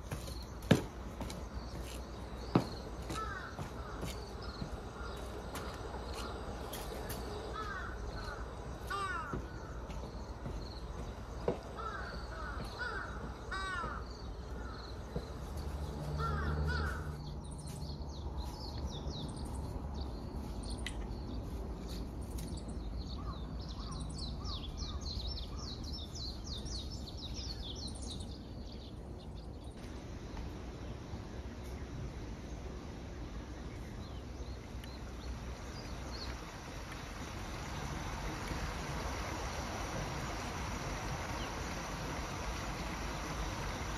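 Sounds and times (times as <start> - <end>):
small birds chirping: 0.0 - 43.9
crows cawing: 3.1 - 6.4, 7.5 - 10.0, 11.5 - 14.9, 16.1 - 17.2.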